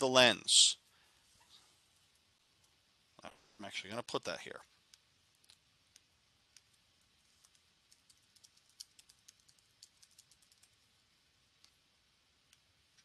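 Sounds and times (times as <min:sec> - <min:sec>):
computer keyboard typing: 0:07.5 - 0:10.8.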